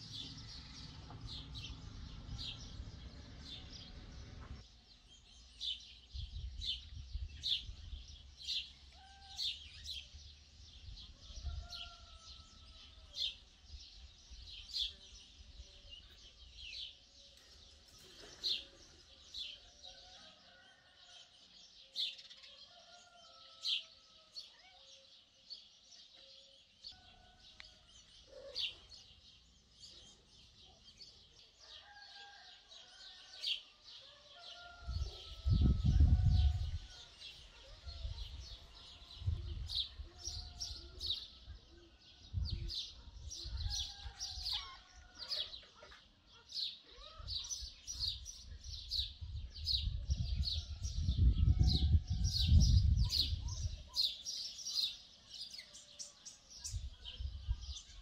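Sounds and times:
low rumble on microphone: 0.0s - 4.6s, 34.9s - 37.0s, 49.2s - 53.8s.

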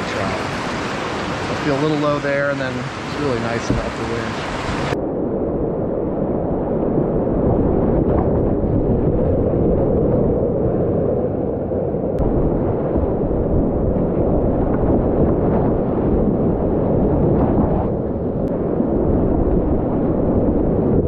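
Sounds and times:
whitewater rapids rushing and splashing: 0.0s - 5.0s.

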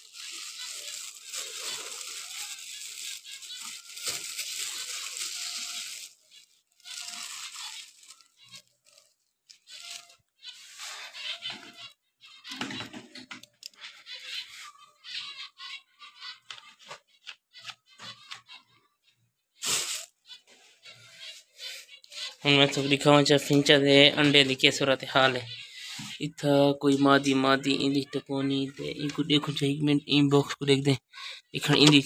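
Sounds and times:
plastic tray rustling and scraping: 19.6s - 26.3s, 31.6s - 32.0s.

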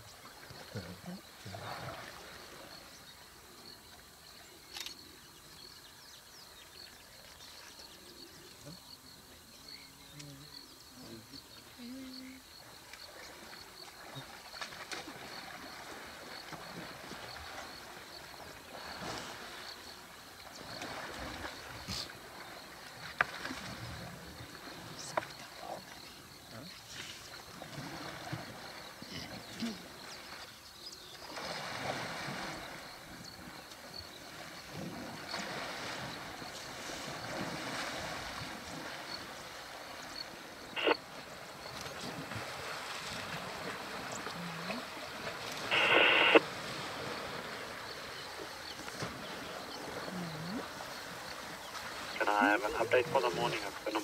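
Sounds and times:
insects chirping: 0.0s - 54.0s
elephants splashing through water: 13.2s - 25.6s, 31.2s - 45.8s, 46.4s - 54.0s
steady rushing noise: 45.7s - 46.4s.

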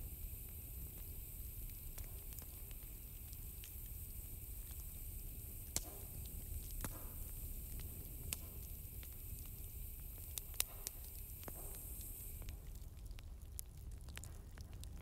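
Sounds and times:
sharp crackling clicks: 0.8s - 4.0s, 4.6s - 15.0s.

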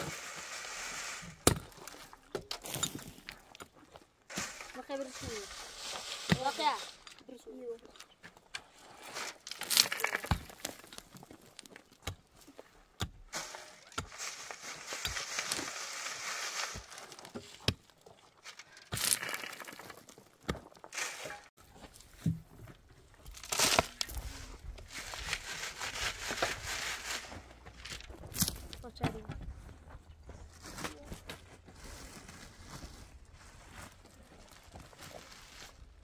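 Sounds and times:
soil rattling through a sieve: 0.0s - 2.8s, 4.3s - 7.4s, 8.9s - 11.7s, 13.3s - 17.6s, 18.3s - 20.2s, 20.9s - 21.5s, 23.3s - 28.9s
shovel digging stony ground: 0.0s - 7.8s, 8.5s - 22.5s, 23.1s - 29.3s.

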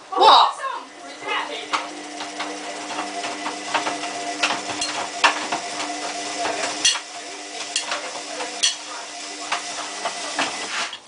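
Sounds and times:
washing machine motor hum: 0.0s - 11.0s
washing machine drum knocking: 1.0s - 10.7s.

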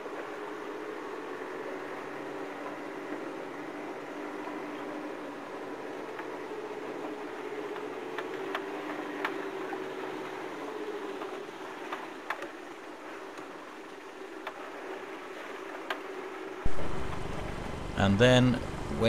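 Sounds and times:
car engine running: 16.6s - 19.0s.

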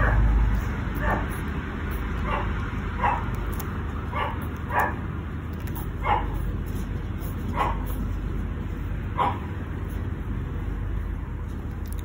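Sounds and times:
puppy yipping: 0.0s - 8.2s, 9.1s - 9.6s.

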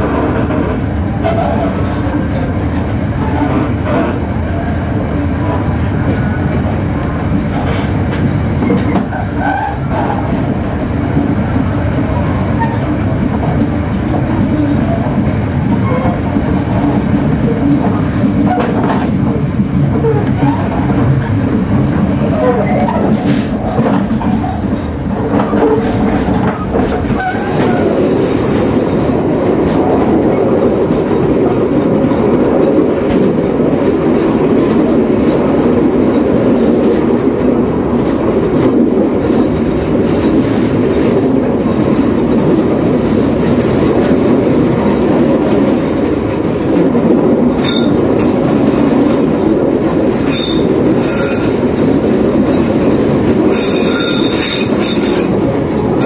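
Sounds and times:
train wheels rumbling on rails: 0.0s - 56.0s
high-pitched wheel squeals: 47.6s - 48.0s, 50.3s - 51.5s, 53.5s - 55.3s.

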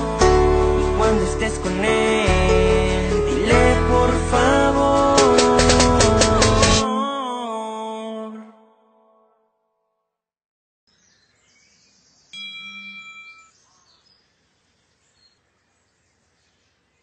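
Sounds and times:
birds chirping: 10.9s - 17.0s
bright chime: 12.4s - 13.6s.

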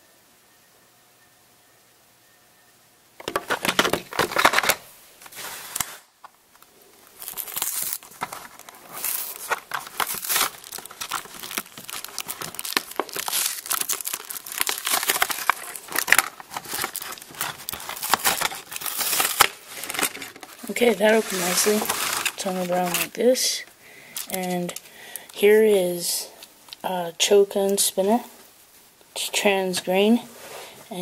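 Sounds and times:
plastic packaging crinkling and tearing: 3.2s - 25.6s.

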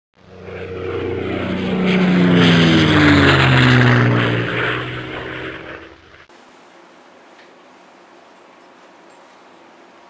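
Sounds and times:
propeller airplane flying past: 0.2s - 6.3s.

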